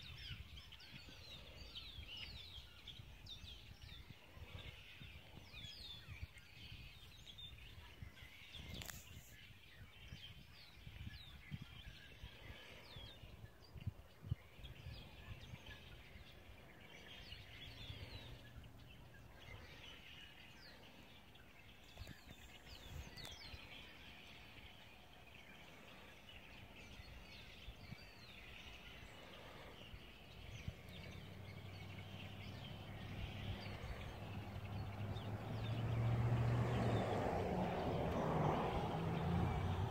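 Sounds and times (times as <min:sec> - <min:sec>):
low wind rumble: 0:00.0 - 0:39.9
vehicle engine hum: 0:29.5 - 0:39.9.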